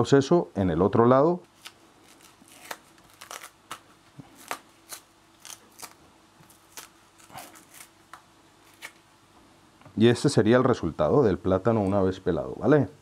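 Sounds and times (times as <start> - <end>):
plantain skin crackling and snapping: 1.5 - 9.1.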